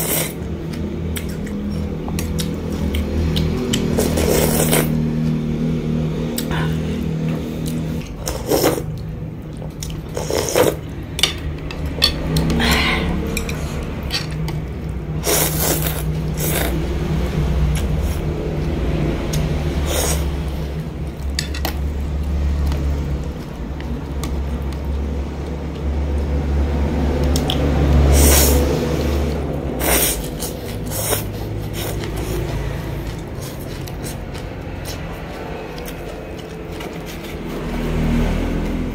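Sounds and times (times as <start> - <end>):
person slurping noodles: 0.0 - 0.5, 3.9 - 5.0, 8.2 - 9.0, 10.1 - 10.9, 15.2 - 16.9, 19.7 - 20.8, 28.0 - 34.2
low hum: 0.3 - 38.9
utensils clinking on ceramic bowl: 11.2 - 12.5.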